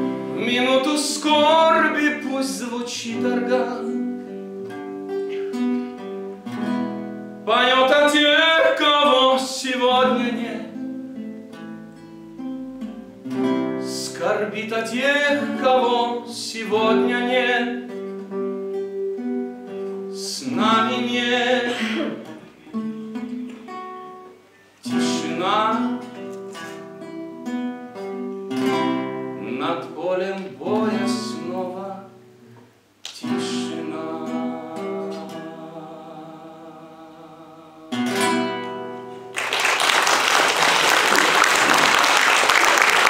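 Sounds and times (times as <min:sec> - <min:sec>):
classical guitar ballad: 0:00.0 - 0:39.6
tenor voice singing: 0:00.3 - 0:04.1, 0:07.5 - 0:10.8, 0:13.8 - 0:17.9, 0:20.2 - 0:22.8, 0:29.4 - 0:32.1, 0:33.1 - 0:38.6
applause: 0:39.3 - 0:43.0.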